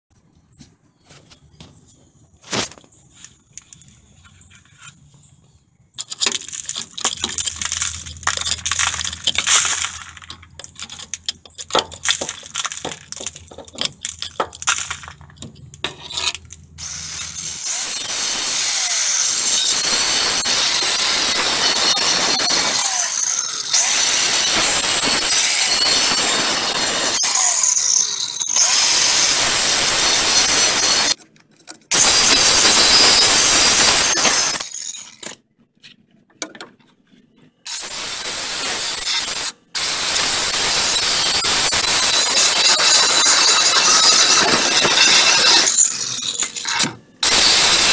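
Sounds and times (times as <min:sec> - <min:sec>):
scraping and knocking on steel: 0:06.0 - 0:16.8
angle grinder cutting steel: 0:15.9 - 0:31.2, 0:31.9 - 0:34.8, 0:37.7 - 0:47.9.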